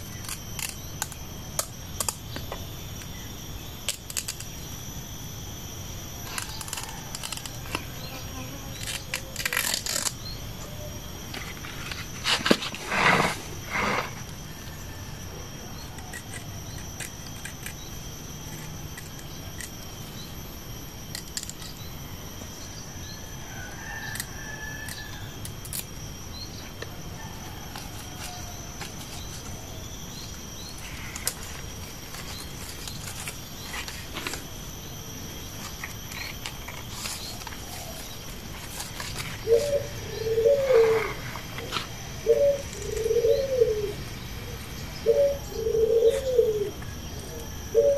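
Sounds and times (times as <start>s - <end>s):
dove cooing: 39.2s - 47.9s.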